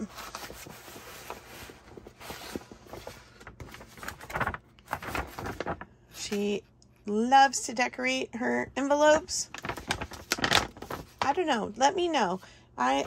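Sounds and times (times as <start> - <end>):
paper envelope crinkling: 0.0 - 6.4, 9.0 - 11.6.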